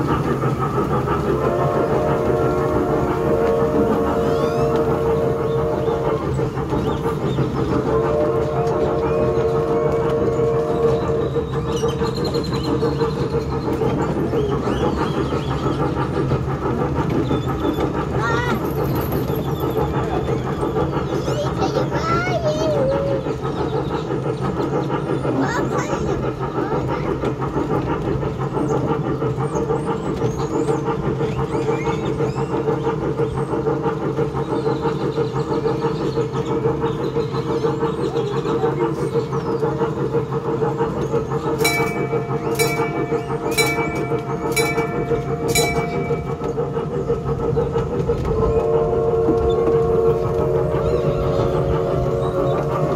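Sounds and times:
miniature train engine hum: 0.0 - 52.9
bell ringing: 41.6 - 46.4.

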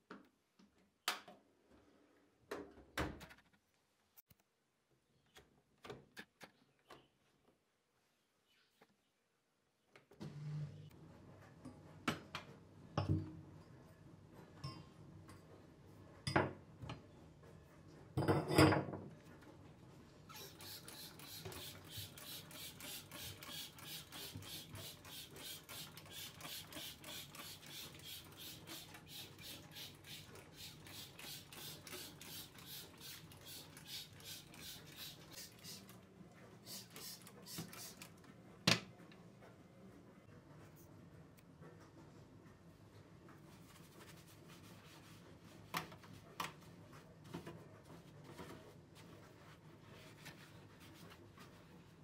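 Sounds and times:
spray bottle squirting: 20.3 - 35.9, 36.7 - 38.1.

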